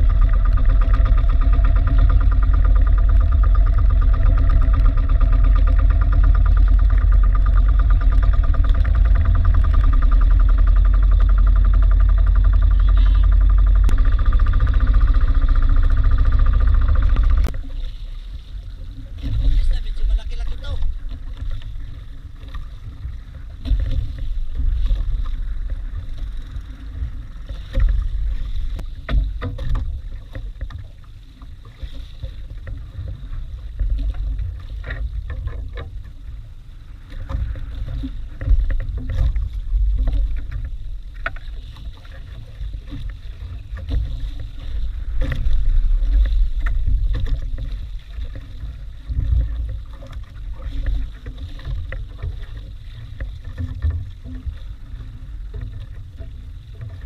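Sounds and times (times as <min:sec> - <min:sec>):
wind buffeting microphone: 0:00.0 - 0:30.9
water washing around boat: 0:00.0 - 0:57.0.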